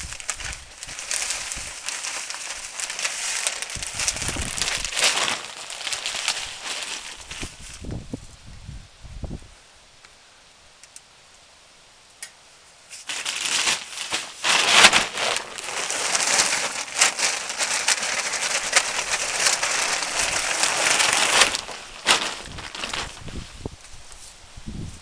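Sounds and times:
plastic bag crinkling: 0.0 - 8.0, 13.0 - 23.8
soil pouring into plastic tub: 0.8 - 7.1.

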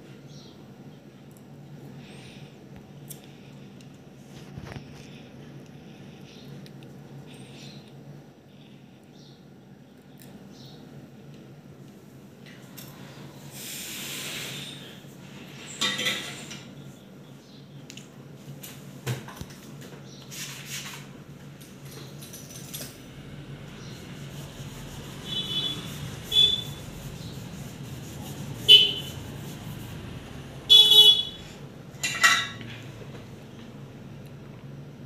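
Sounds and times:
steady low hum: 21.0 - 35.0
vehicle horn honks: 25.2 - 26.9, 28.6 - 29.2, 30.7 - 31.6.

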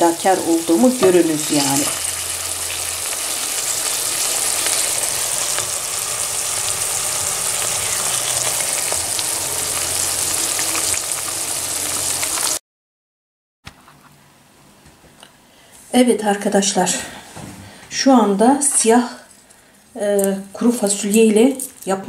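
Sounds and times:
vegetables sizzling in oil: 0.0 - 12.6.

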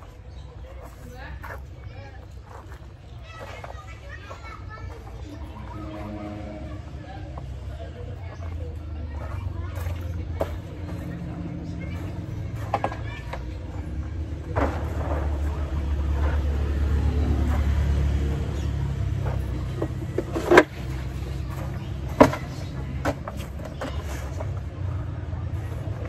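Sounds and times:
low steady rumble: 5.2 - 13.0.

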